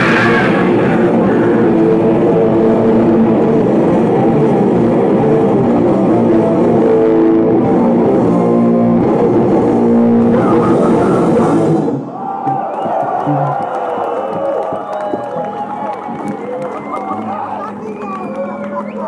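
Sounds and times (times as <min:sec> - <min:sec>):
drums pounding: 0:00.0 - 0:07.0, 0:07.6 - 0:16.9
distorted electric guitars: 0:00.0 - 0:12.1.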